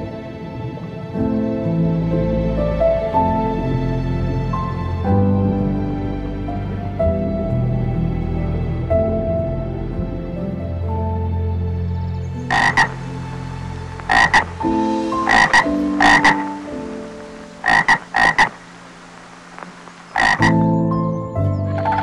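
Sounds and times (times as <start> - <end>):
frogs croaking: 12.0 - 22.0.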